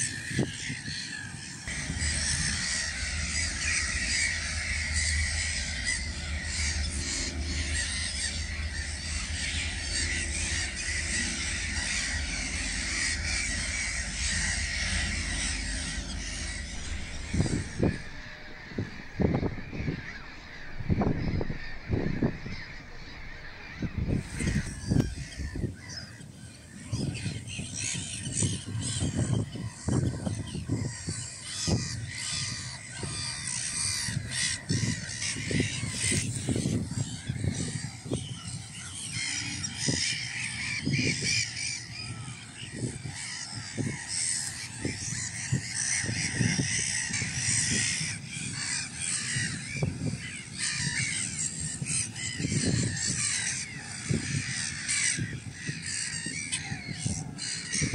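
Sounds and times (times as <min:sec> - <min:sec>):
gulls calling harshly: 0:00.0 - 0:57.9
dull low thumps: 0:01.7 - 0:25.8.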